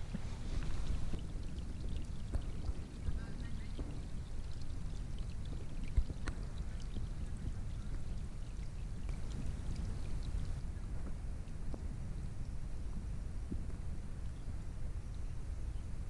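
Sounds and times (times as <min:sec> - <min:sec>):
raindrops falling on pond: 0:00.0 - 0:11.9
steady low rumble: 0:00.0 - 0:16.0.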